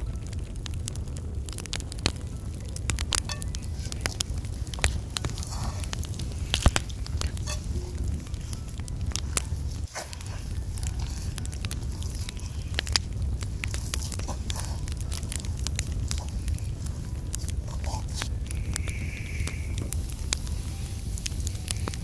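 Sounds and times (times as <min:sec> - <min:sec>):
hand squishing dough: 0:00.0 - 0:22.0
steady low rumble: 0:00.0 - 0:22.0.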